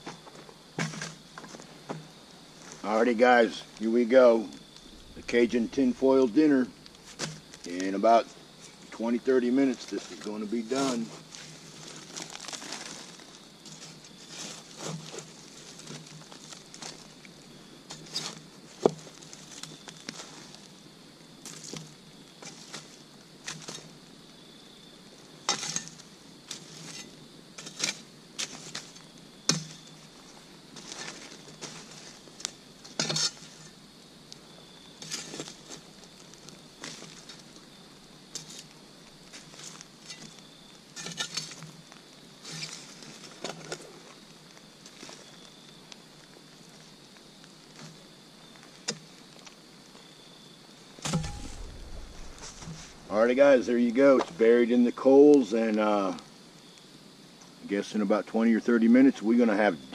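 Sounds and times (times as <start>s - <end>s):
fire crackling: 0.0s - 59.7s
tool raking campfire coals: 0.1s - 24.5s, 25.1s - 50.0s, 50.8s - 56.3s.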